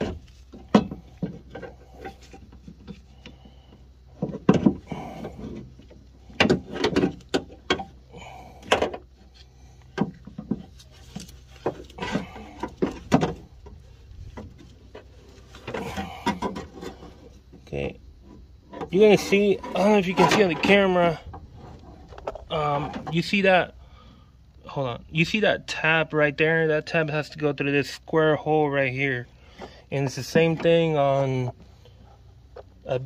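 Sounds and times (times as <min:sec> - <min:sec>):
metal clunks and rattles: 0:00.0 - 0:09.2, 0:09.9 - 0:23.4.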